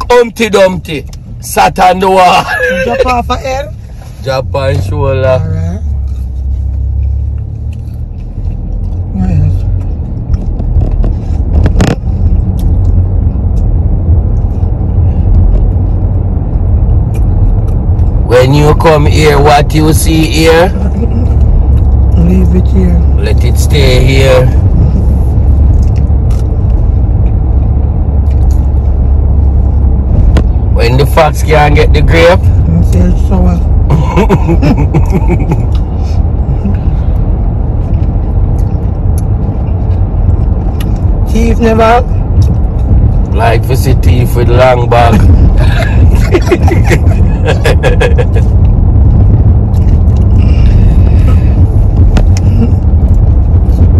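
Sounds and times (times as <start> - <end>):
person speaking: 0.0 - 6.0
car road noise rumble: 0.0 - 53.9.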